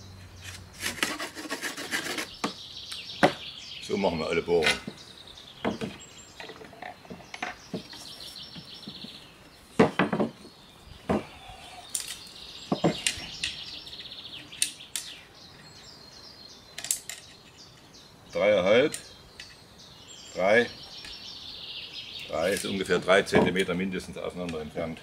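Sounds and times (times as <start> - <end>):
knocks on wooden tabletop: 5.6 - 6.0, 9.8 - 10.4, 12.7 - 13.0.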